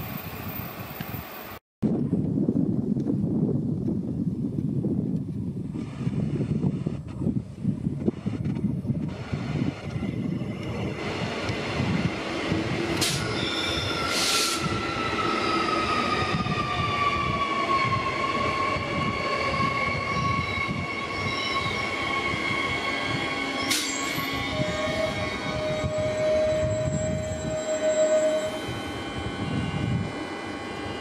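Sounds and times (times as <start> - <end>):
electric train passing: 9.1 - 31.0
train whine falling in pitch: 9.8 - 31.0.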